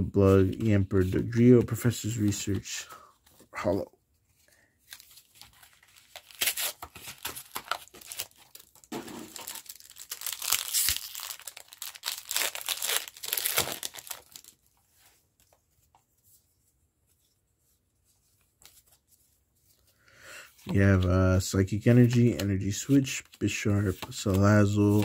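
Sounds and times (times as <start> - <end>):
foil wrapper tearing and crinkling: 5.6 - 14.6.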